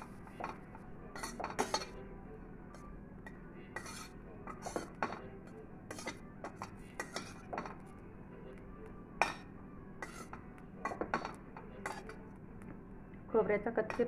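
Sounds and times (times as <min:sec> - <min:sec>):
steel spatula scraping a pan: 0:01.1 - 0:02.0, 0:03.7 - 0:05.0, 0:05.9 - 0:07.5, 0:10.0 - 0:10.4.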